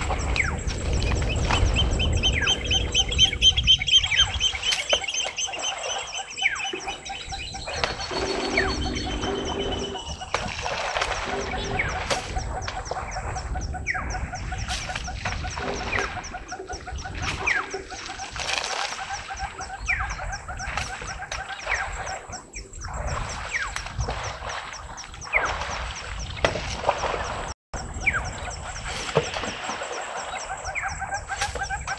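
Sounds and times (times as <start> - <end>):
steady pulsed bird call: 0.0 - 18.3, 24.8 - 31.9
sliding bird whistles: 0.4 - 10.4.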